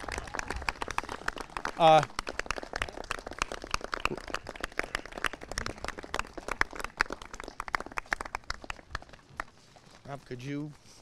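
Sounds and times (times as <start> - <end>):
people clapping: 0.0 - 10.7.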